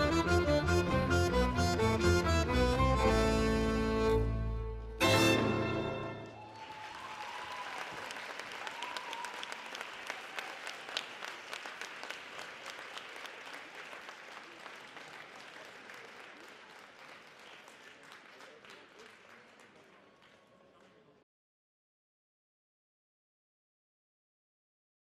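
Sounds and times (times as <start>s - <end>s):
audience applause: 6.1s - 21.2s.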